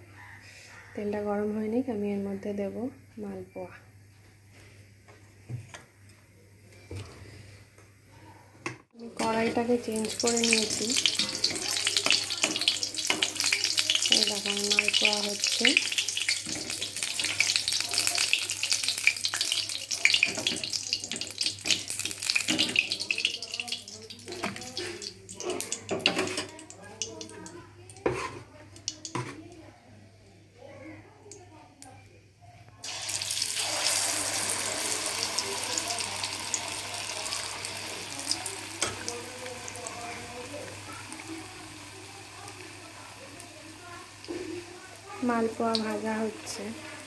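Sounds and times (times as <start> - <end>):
batter sizzling in hot oil: 9.0 - 29.3, 32.8 - 47.0.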